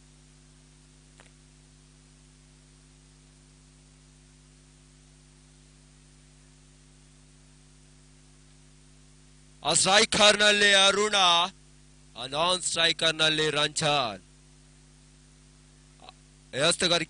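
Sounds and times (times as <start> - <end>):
low electrical hum: 0.0 - 17.0
steady hiss: 0.0 - 17.0
faint click: 1.1 - 1.4.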